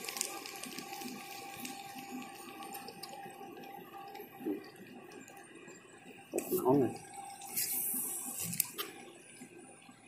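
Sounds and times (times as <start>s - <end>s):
small ticks: 0.0s - 9.5s
water hiss: 7.4s - 8.8s.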